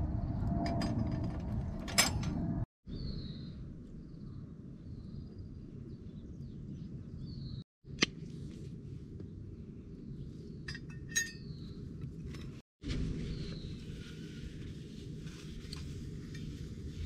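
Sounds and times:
low outdoor rumble: 0.0s - 17.0s
light metallic clinks: 10.7s - 11.6s.

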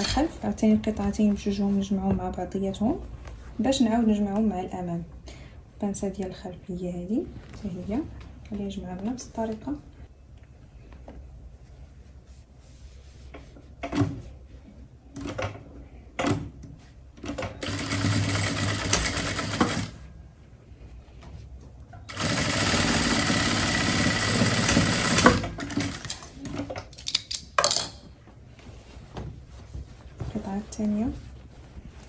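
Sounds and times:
electric sewing machine stitching: 17.6s - 20.0s, 22.1s - 26.2s.

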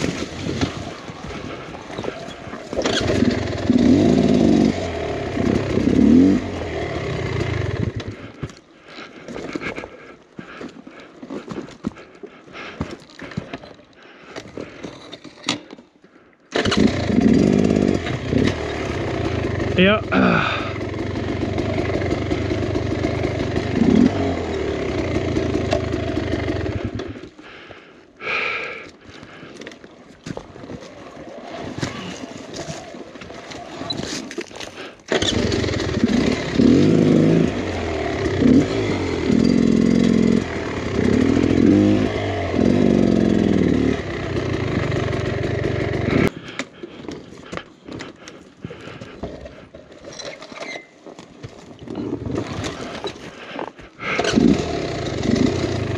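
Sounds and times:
dirt bike engine revving: 0.0s - 8.4s, 16.5s - 27.2s, 30.7s - 34.0s, 35.1s - 46.3s, 51.9s - 53.0s, 54.0s - 55.9s.

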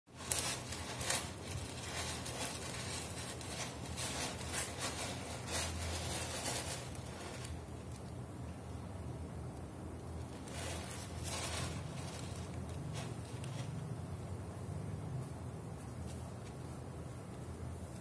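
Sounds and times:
kitten scratching cat litter: 0.1s - 8.2s, 10.0s - 14.4s.

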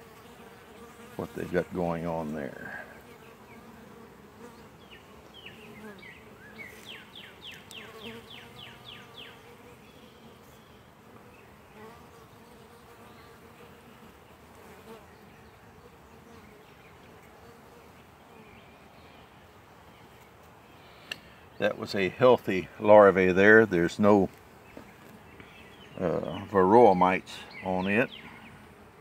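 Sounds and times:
honeybees buzzing: 0.0s - 29.0s.

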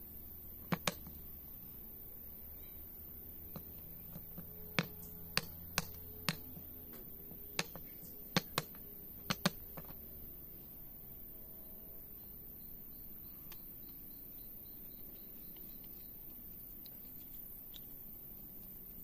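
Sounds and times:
knife chopping wood: 3.6s - 6.5s, 7.6s - 9.9s.

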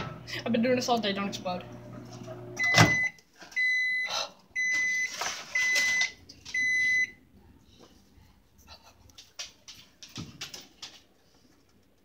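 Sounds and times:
microwave oven beeping: 1.7s - 7.2s.

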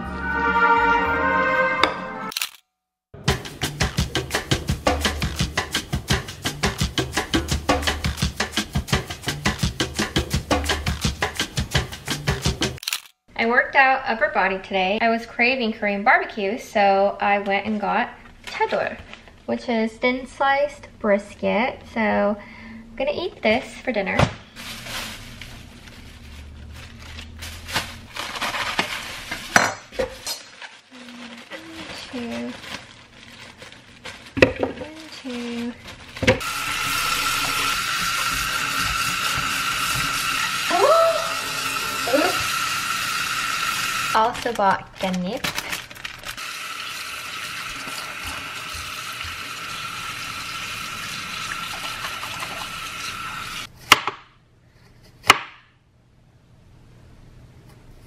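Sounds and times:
plastic bags rustling: 24.5s - 37.7s, 44.1s - 46.8s.

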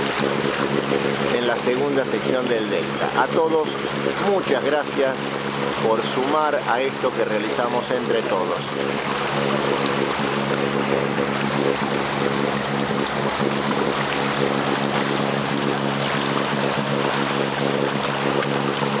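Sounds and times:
motorboat engine drone: 0.0s - 19.0s
water splashing along hull: 0.0s - 19.0s.

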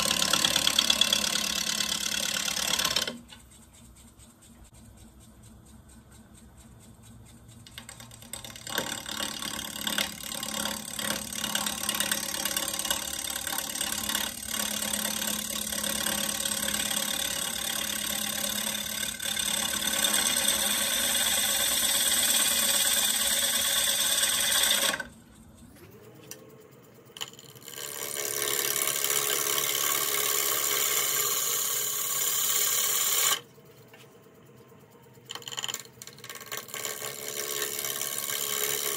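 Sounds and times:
gouge cutting wood on lathe: 0.0s - 3.3s, 7.7s - 25.2s, 27.2s - 33.4s, 35.3s - 38.9s.

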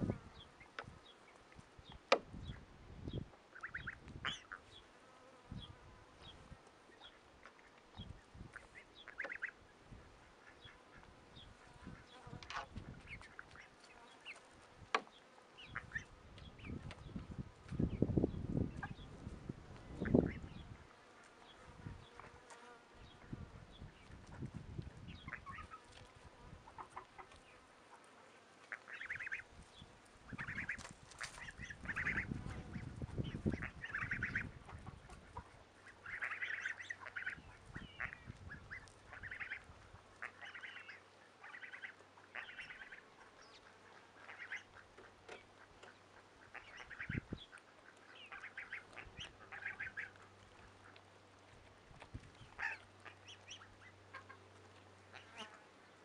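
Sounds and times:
ducks quacking: 3.5s - 4.7s, 8.5s - 9.6s, 15.6s - 16.8s, 25.2s - 25.8s, 26.6s - 28.0s, 28.6s - 29.5s, 30.3s - 51.0s, 52.4s - 55.5s.

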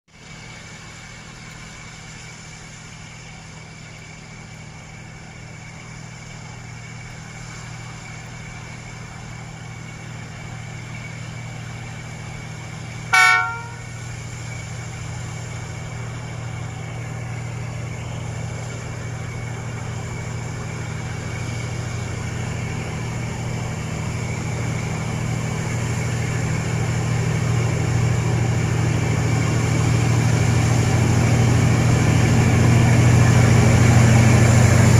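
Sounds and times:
locomotive engine drone: 0.1s - 34.9s
locomotive horn blast: 13.1s - 14.1s.

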